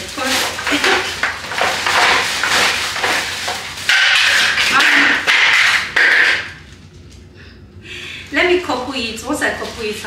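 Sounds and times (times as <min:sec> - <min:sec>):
plastic parts clattering: 0:00.0 - 0:06.6
packaging rustling: 0:00.0 - 0:06.7.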